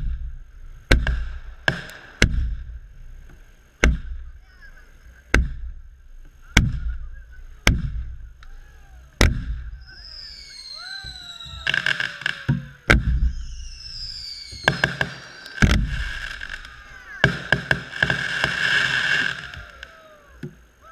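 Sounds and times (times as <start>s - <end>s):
fireworks booming: 0.0s - 20.9s
rapid crackling fireworks: 0.0s - 20.9s
falling whistling tones: 9.7s - 20.9s.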